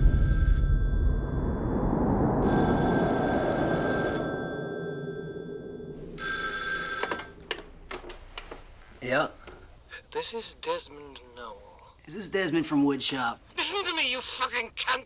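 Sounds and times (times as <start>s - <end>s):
telephone bell ringing: 0.0s - 1.7s, 2.4s - 7.6s
deep low rumble: 0.0s - 6.9s.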